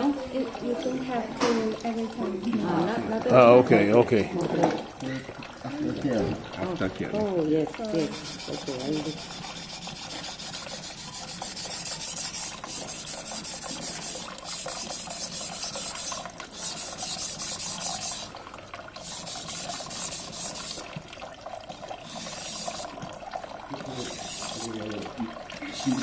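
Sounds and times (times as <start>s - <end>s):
knife scraping on whetstone: 8.0s - 18.3s, 19.0s - 20.8s, 22.1s - 23.0s, 24.0s - 24.7s.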